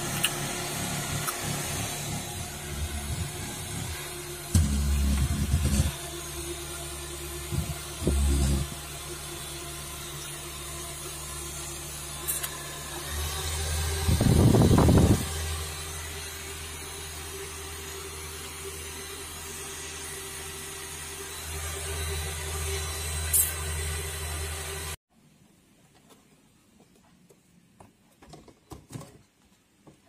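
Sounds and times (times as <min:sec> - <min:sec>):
car fan whirring: 0:00.0 - 0:22.9.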